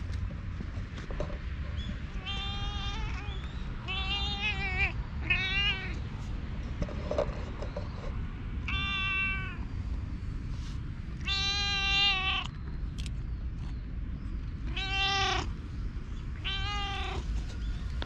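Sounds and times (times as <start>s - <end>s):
steady low rumble: 0.0s - 18.0s
cat meowing: 2.2s - 6.0s, 8.7s - 9.6s, 11.2s - 12.5s, 14.7s - 15.5s, 16.4s - 17.3s.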